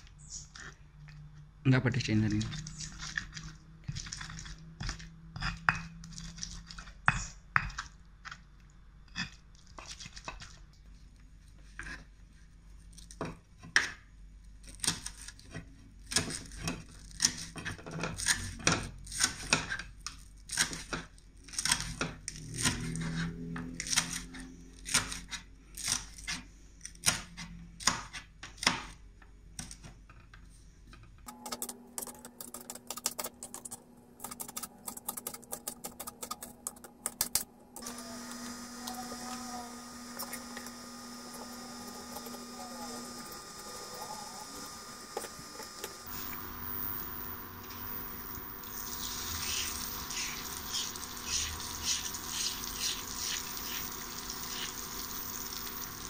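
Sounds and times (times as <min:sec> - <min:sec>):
stone pestle grinding in mortar: 0:02.4 - 0:07.9, 0:48.8 - 0:55.8.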